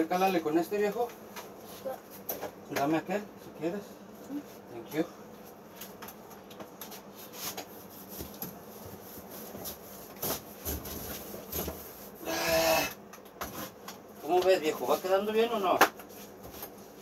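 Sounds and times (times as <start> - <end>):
paintbrush rubbing against wall: 6.9 - 12.2.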